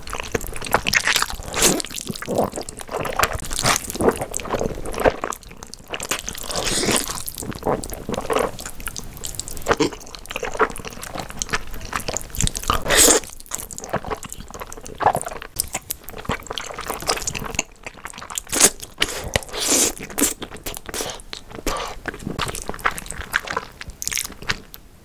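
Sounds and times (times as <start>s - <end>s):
slurping and chewing noodles: 0.0s - 24.8s.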